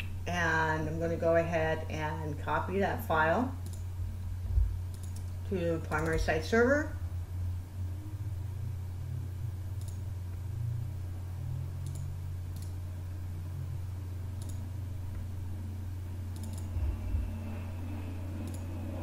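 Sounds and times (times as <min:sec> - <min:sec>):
steady low hum: 0:00.0 - 0:19.0
computer mouse clicks: 0:03.6 - 0:03.8, 0:04.9 - 0:05.4, 0:09.8 - 0:10.0, 0:11.8 - 0:12.8, 0:14.4 - 0:14.6, 0:16.3 - 0:16.7, 0:18.4 - 0:18.7
soft low bump: 0:04.4 - 0:04.8.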